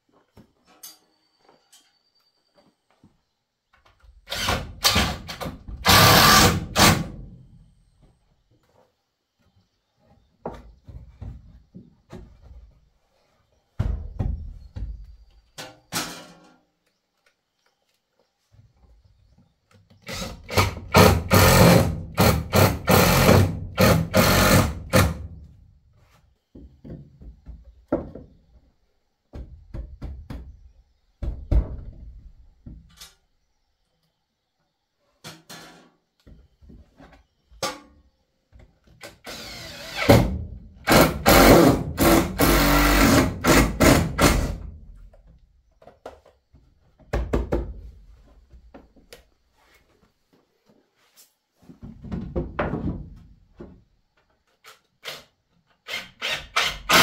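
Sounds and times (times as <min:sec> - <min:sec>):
cordless drill driving screws: 0:04.3 - 0:07.0, 0:39.2 - 0:40.2, 0:55.9 - 0:57.0
knocks and wood-handling thuds: 0:09.4 - 0:13.0, 0:13.7 - 0:16.6, 0:24.9 - 0:33.0, 0:43.4 - 0:49.3, 0:51.6 - 0:54.4.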